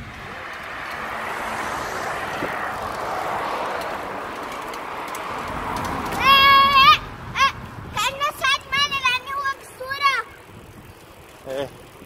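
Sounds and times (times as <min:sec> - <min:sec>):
tyres rolling on asphalt: 0:00.0 - 0:12.0
wind over microphone: 0:05.3 - 0:12.0.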